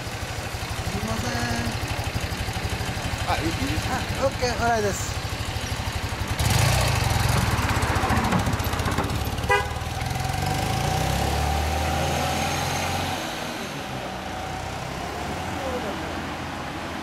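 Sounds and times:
motorcycle engine pulling away: 0.0 - 16.1
horn toot: 9.4 - 9.9.

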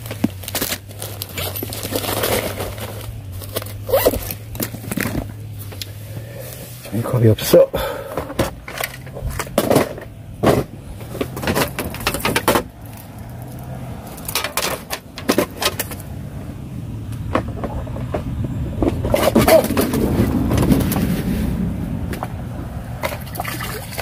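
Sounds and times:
plastic items clicking and knocking: 8.1 - 16.1.

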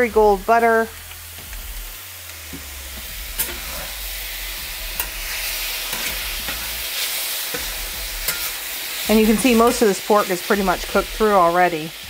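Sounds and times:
meat sizzling in a pan: 0.0 - 12.0
metal spatula scraping a pan: 2.4 - 11.5.

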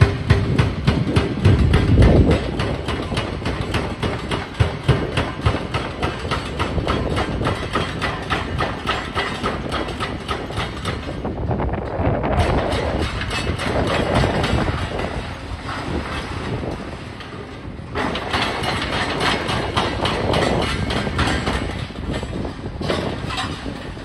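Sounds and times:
diesel engines running: 0.0 - 24.0.

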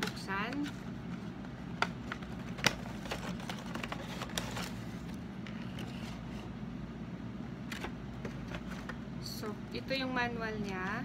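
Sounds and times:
packaging clicks and crinkles: 0.0 - 6.0.

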